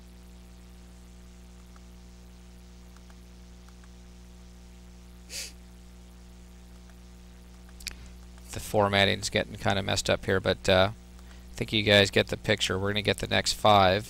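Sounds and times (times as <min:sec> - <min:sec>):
electrical hum: 0:00.0 - 0:14.0
faint clicks: 0:01.6 - 0:02.0, 0:02.9 - 0:04.0, 0:06.8 - 0:08.6, 0:11.1 - 0:11.4.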